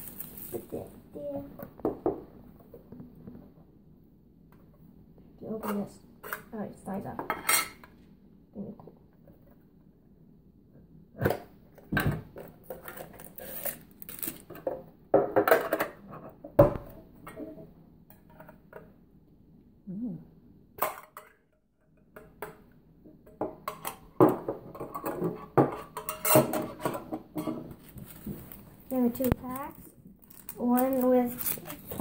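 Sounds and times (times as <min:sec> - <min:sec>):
hands handling card packs: 0:27.8 - 0:32.0.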